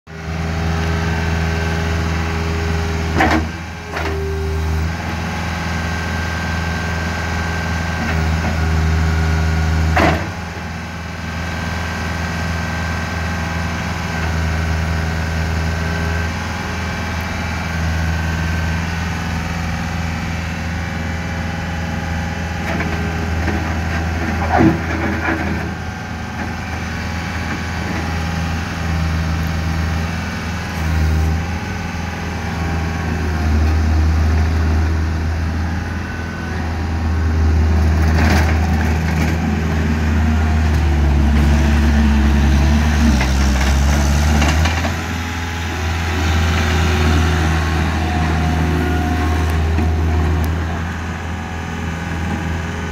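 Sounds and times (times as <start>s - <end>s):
diesel engine running: 0.1s - 52.9s.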